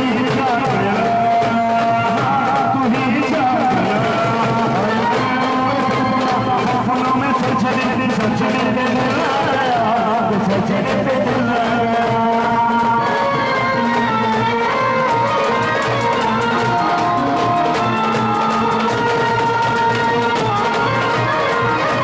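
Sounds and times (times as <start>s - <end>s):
brass band playing: 13.8s - 22.0s
drum and cymbal strokes: 14.7s - 22.0s.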